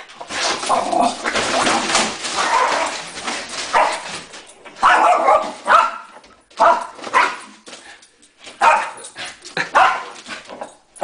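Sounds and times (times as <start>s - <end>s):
dog barking: 3.7s - 4.0s, 4.8s - 7.5s, 8.6s - 9.0s, 9.7s - 10.2s.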